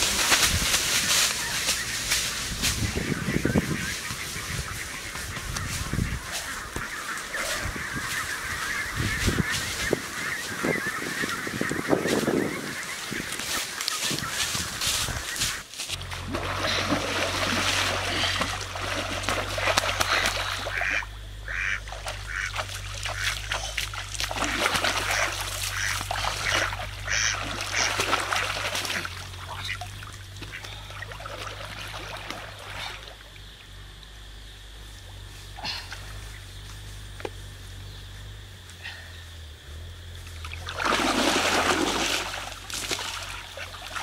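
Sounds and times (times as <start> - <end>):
water splashing: 0.0 - 33.4, 40.4 - 44.0
duck quacking: 19.5 - 23.8, 24.4 - 30.9.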